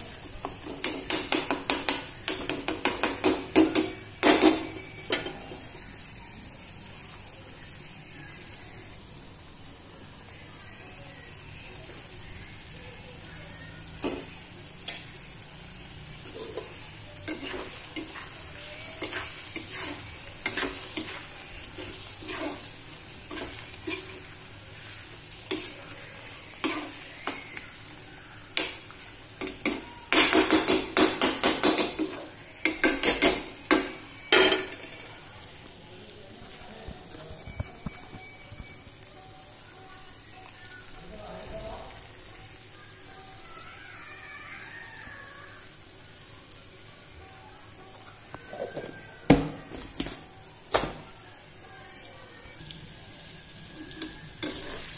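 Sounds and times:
gravy sizzling in a pan: 0:00.0 - 0:54.9
spoon scraping a pan: 0:16.1 - 0:27.9, 0:28.5 - 0:35.1, 0:53.6 - 0:54.9.

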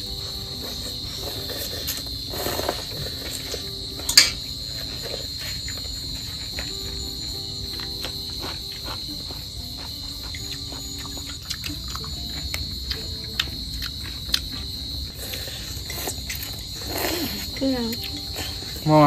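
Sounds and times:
crickets trilling: 0:00.0 - 0:19.0
cucumber being bitten and chewed: 0:07.7 - 0:18.6.

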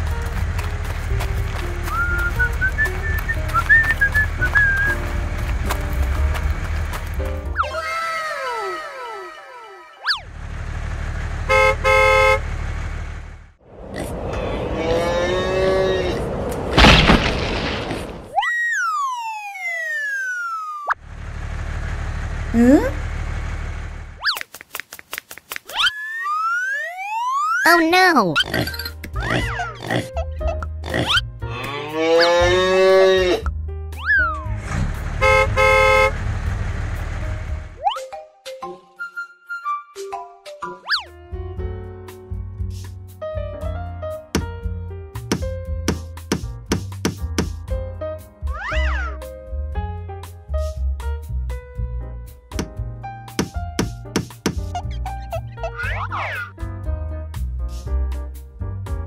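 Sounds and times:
tractor engine running: 0:00.0 - 0:07.6, 0:10.2 - 0:14.6, 0:21.0 - 0:25.6, 0:34.4 - 0:37.8
rising and falling whistle: 0:01.9 - 0:05.0, 0:18.4 - 0:20.9, 0:25.8 - 0:27.6
two-tone horn tooting: 0:11.4 - 0:12.5, 0:35.2 - 0:36.2.

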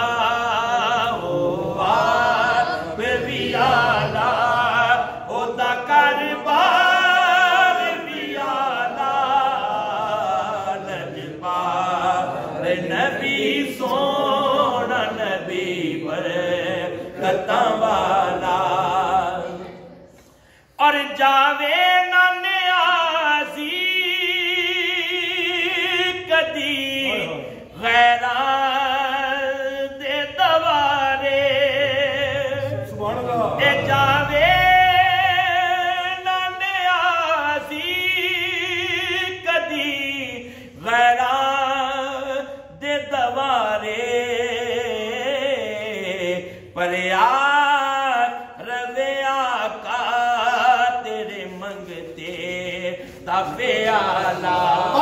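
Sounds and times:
man singing unaccompanied: 0:00.0 - 0:19.6, 0:20.8 - 0:55.0.

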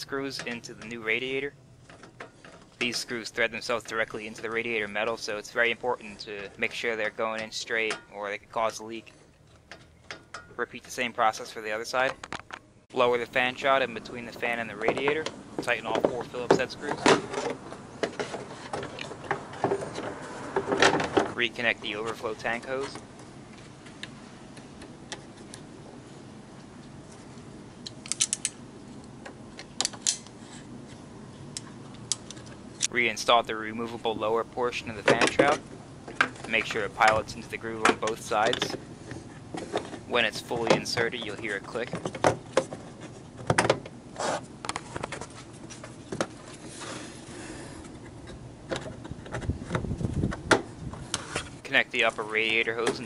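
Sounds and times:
plastic parts snapping clicks: 0:27.8 - 0:28.6.

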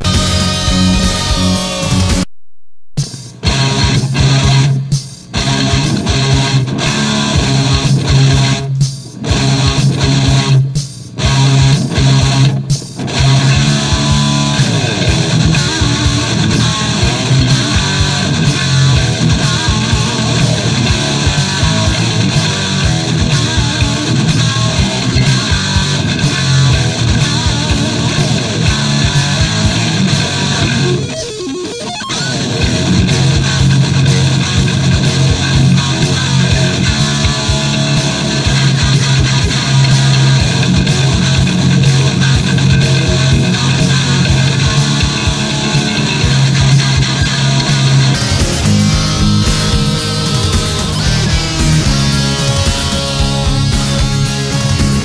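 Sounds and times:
instrumental rock with electric guitar: 0:00.0 - 0:02.3, 0:03.0 - 0:55.0.

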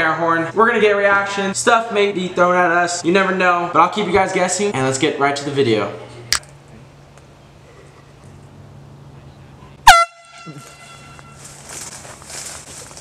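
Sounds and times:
air horn blast: 0:09.8 - 0:11.6.

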